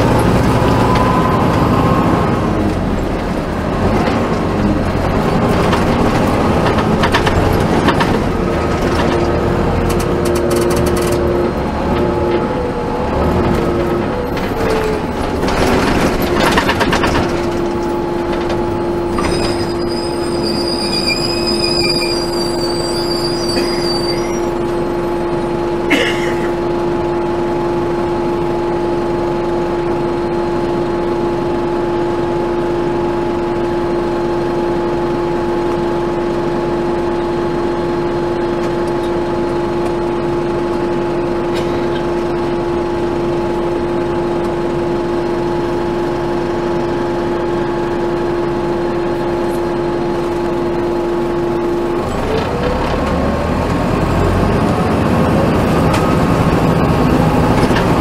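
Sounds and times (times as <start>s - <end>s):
bus engine idling: 0.0s - 58.0s
thin high squeal: 19.2s - 25.0s.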